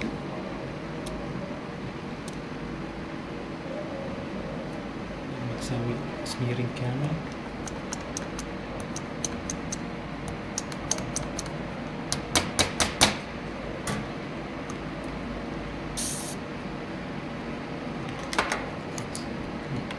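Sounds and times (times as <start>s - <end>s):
brief hiss: 16.0s - 16.4s.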